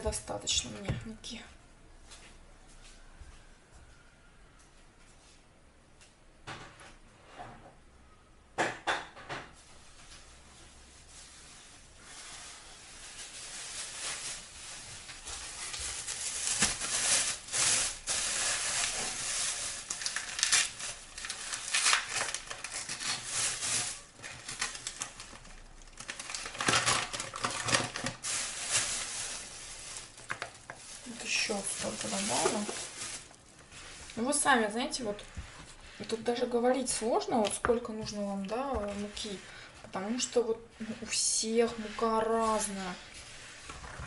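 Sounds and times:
flour bag rustling: 9.9 - 39.4.

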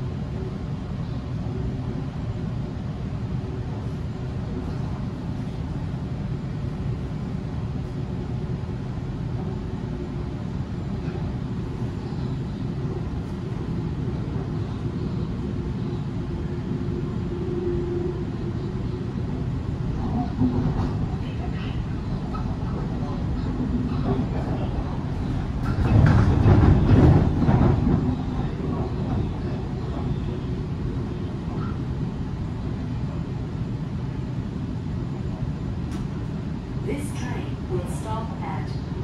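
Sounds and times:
train wheels rumbling on track: 0.0 - 39.0.

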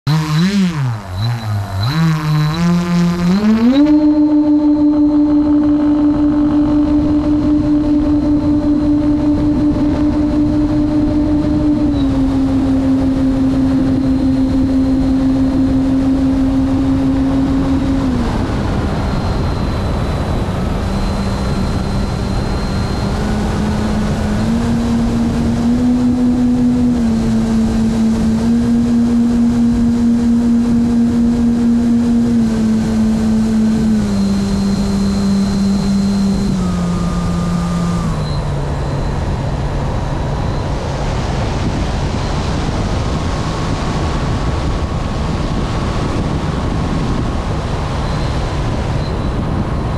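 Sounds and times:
model airplane motor droning: 0.1 - 49.9
rushing air: 36.0 - 49.9.

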